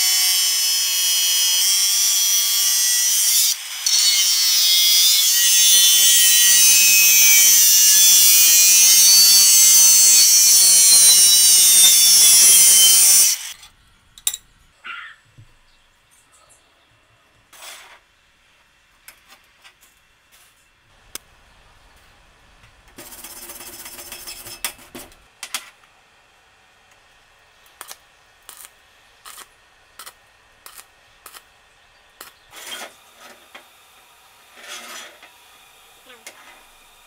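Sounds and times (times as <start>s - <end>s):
metal scraping on metal: 23.0s - 25.1s, 34.5s - 35.3s.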